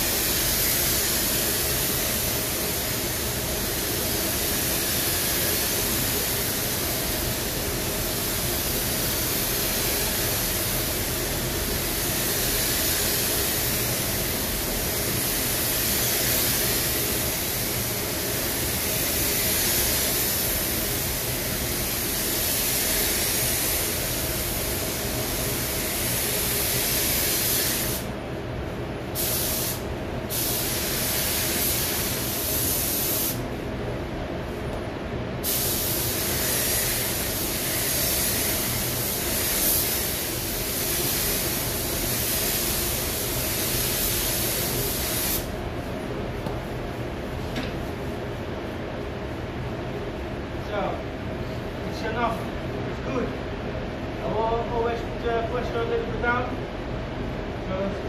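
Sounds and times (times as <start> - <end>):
spray gun hissing: 0.0 - 28.2, 29.1 - 33.4, 35.4 - 45.6
steady low hum: 0.0 - 58.0.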